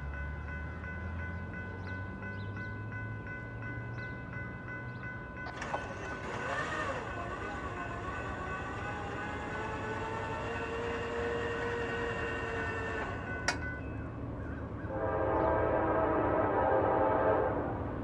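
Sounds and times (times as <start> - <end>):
crossing warning bell ringing: 0.0 - 15.1
distant train horn: 5.5 - 14.0, 14.8 - 18.0.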